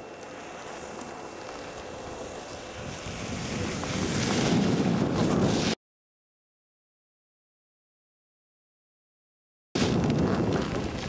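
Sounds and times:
wind buffeting microphone: 1.7s - 5.8s, 9.8s - 11.0s.

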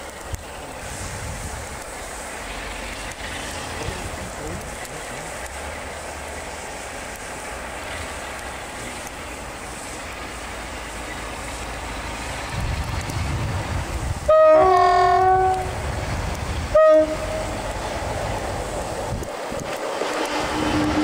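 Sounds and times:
diesel locomotive engine rumbling: 0.0s - 21.0s
two-tone train horn: 14.3s - 15.8s, 16.7s - 17.6s, 20.2s - 21.0s.

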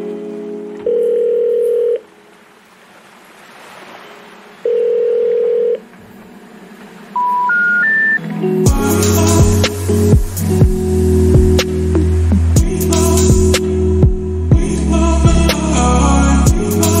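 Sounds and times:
telephone ringback beep: 0.8s - 2.0s, 4.7s - 5.8s, 7.2s - 8.2s
rising short beeps: 7.2s - 8.2s.

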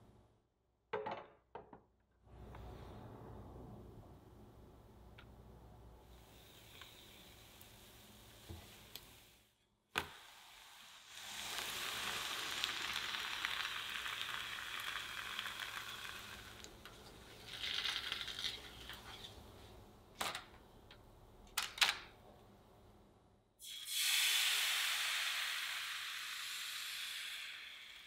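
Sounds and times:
crepe sizzling in frying pan: 10.1s - 19.2s.

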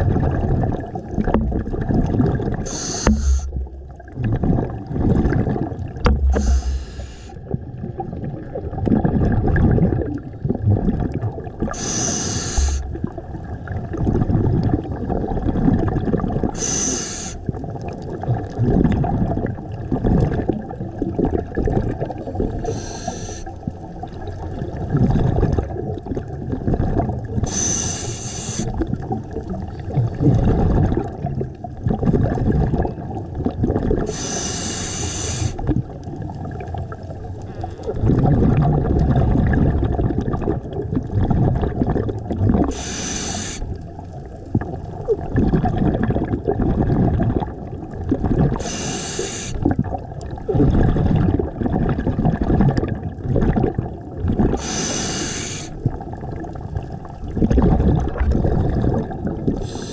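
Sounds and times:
exhaled air bubbling: 0.0s - 59.9s
regulator inhale hiss: 2.6s - 3.6s, 6.3s - 7.4s, 11.7s - 12.9s, 16.6s - 17.4s, 22.6s - 23.5s, 27.4s - 28.7s, 34.1s - 35.6s, 42.7s - 43.8s, 48.6s - 49.6s, 54.6s - 55.8s, 59.6s - 59.9s.

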